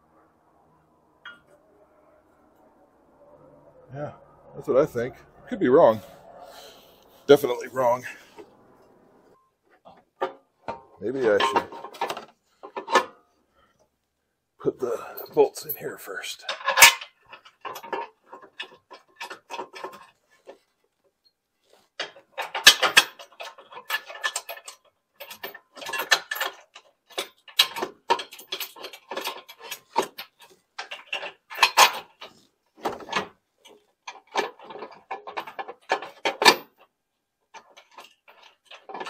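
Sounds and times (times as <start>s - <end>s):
metallic clicking and clanking of tools: 9.8s - 13.2s, 14.9s - 20.6s, 22.0s - 36.9s, 37.5s - 39.0s.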